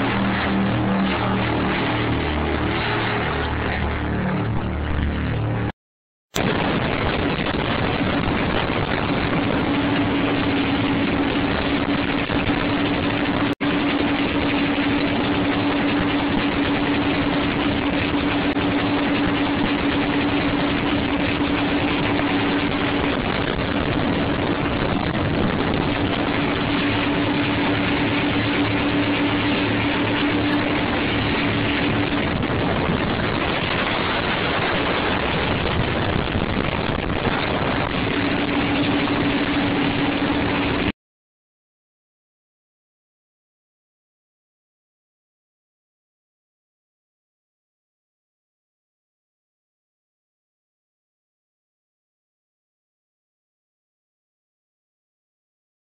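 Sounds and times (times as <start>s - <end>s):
boat engines humming: 0.0s - 5.7s, 6.4s - 40.9s
rushing water: 0.0s - 5.7s, 6.4s - 40.9s
heavy wind: 0.0s - 41.0s.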